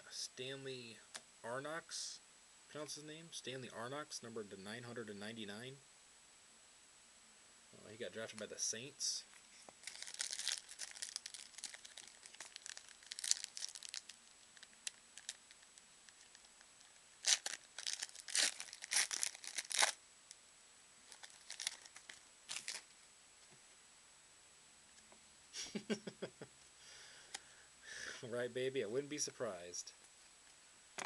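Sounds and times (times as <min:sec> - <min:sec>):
card wrapper crinkling: 0:09.8 - 0:20.0, 0:21.1 - 0:22.9.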